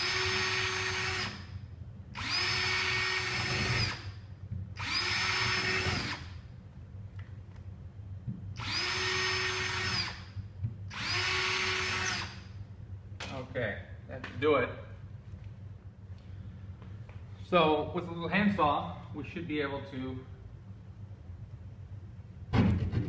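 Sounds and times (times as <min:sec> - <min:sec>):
cordless drill drilling drywall: 0:00.0 - 0:01.5, 0:02.2 - 0:04.2, 0:04.8 - 0:06.4, 0:08.6 - 0:12.5.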